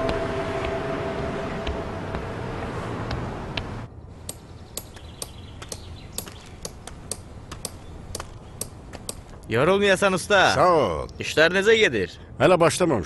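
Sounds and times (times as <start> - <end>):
street traffic: 0.0 - 9.6.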